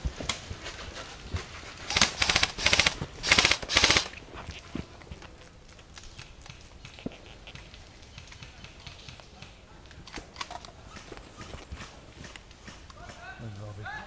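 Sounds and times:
airsoft rifle bursts: 0:01.9 - 0:04.2.

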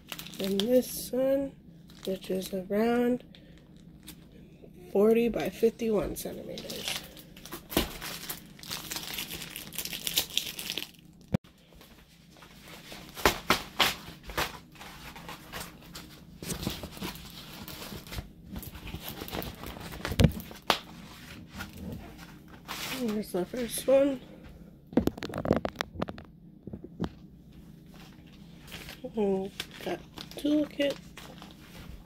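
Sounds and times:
plastic packaging crinkling: 0:00.0 - 0:01.0, 0:01.8 - 0:02.5, 0:06.5 - 0:20.9, 0:25.0 - 0:26.3, 0:27.9 - 0:32.0.

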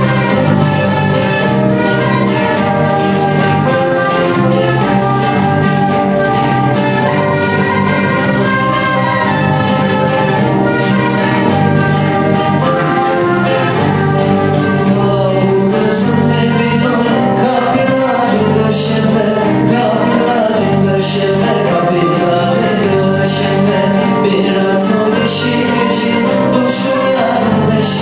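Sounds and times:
acoustic guitar: 0:00.0 - 0:28.0
bass guitar: 0:00.0 - 0:28.0
electric guitar: 0:00.0 - 0:28.0
end-blown flute melody: 0:00.0 - 0:28.0.

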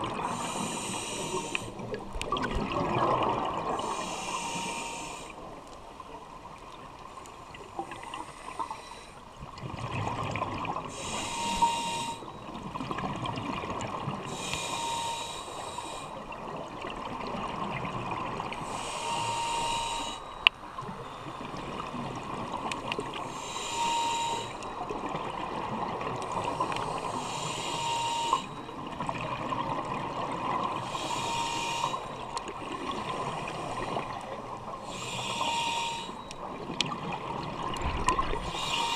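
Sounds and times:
scuba regulator hissing breath: 0:00.2 - 0:01.9, 0:03.7 - 0:05.5, 0:08.0 - 0:09.2, 0:10.9 - 0:12.4, 0:14.2 - 0:16.2, 0:18.6 - 0:21.5, 0:23.2 - 0:24.9, 0:26.3 - 0:28.6, 0:30.8 - 0:32.2, 0:34.8 - 0:36.3, 0:38.4 - 0:38.9
whistle-like tone: 0:11.0 - 0:12.4, 0:14.6 - 0:15.6, 0:18.9 - 0:21.3, 0:23.4 - 0:24.8, 0:27.4 - 0:28.7, 0:35.1 - 0:36.3.

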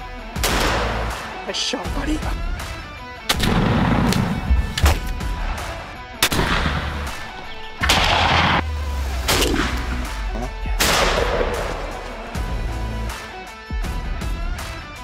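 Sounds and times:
echoing shotgun blasts: 0:00.4 - 0:01.4, 0:03.3 - 0:04.5, 0:06.2 - 0:08.6, 0:10.8 - 0:12.0.

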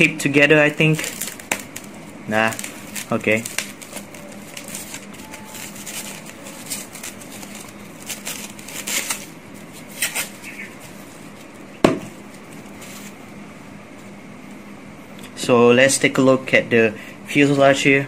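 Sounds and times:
foam sleeve rustling: 0:00.6 - 0:11.7.

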